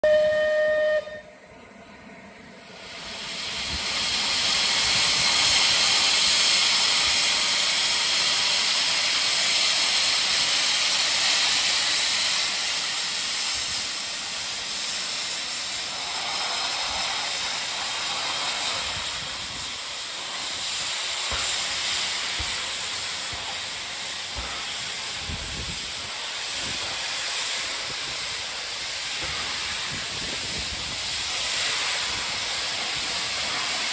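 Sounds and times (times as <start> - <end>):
steam locomotive whistle: 0.0 - 1.5
steam hissing from drain cocks: 2.7 - 33.9.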